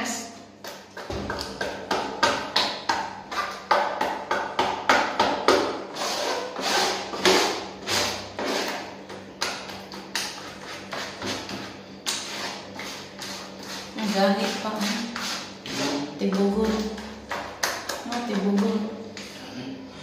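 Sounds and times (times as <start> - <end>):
hand mixing cement in tray: 10.2 - 17.4.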